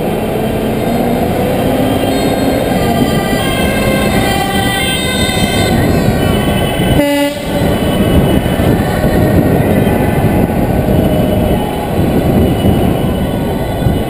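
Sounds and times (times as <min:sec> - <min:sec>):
engine and road rumble: 0:00.0 - 0:14.0
short horn toot: 0:06.7 - 0:07.7.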